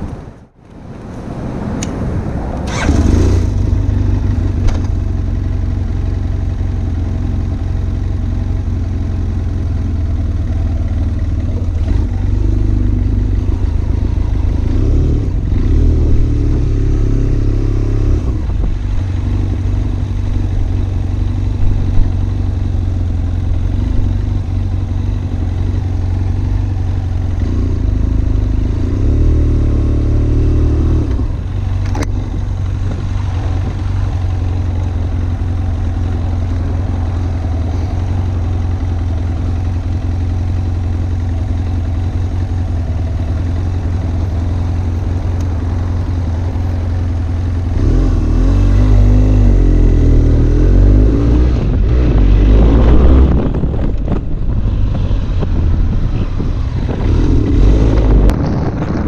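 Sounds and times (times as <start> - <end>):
motorcycle engine running: 2.7 - 59.0.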